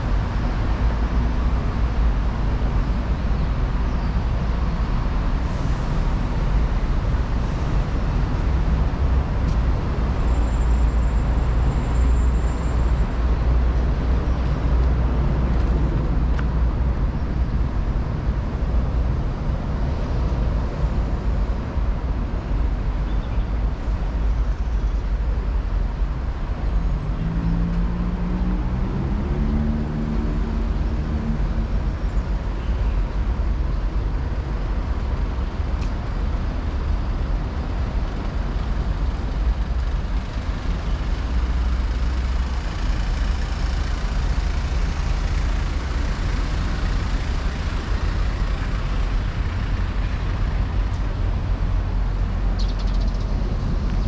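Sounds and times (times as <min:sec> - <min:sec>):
rumble of passing traffic: 0:00.0 - 0:54.0
vehicle engine accelerating: 0:26.8 - 0:32.0, 0:35.3 - 0:54.0.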